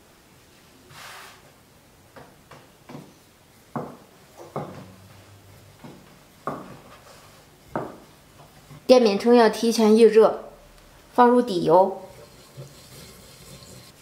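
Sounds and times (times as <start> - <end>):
rolling pin knocking on board: 5.8 - 7.0, 7.7 - 8.5.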